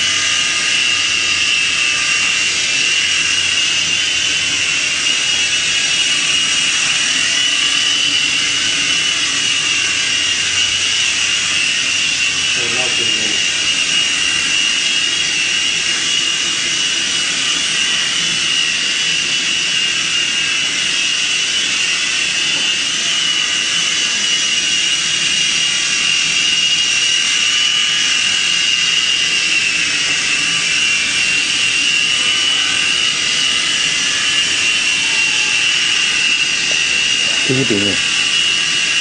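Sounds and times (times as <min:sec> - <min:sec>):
toy helicopter motor whine: 0:00.0 - 0:39.0.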